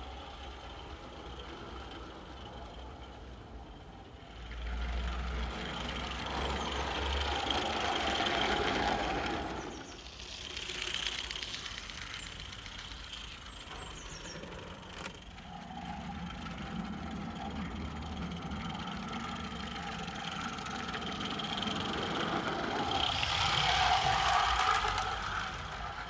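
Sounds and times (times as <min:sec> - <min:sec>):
small steam locomotive running: 0:00.0 - 0:26.0.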